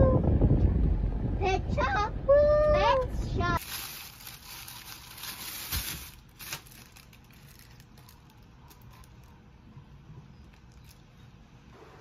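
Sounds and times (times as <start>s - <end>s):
plastic bag crinkling: 3.6s - 9.3s.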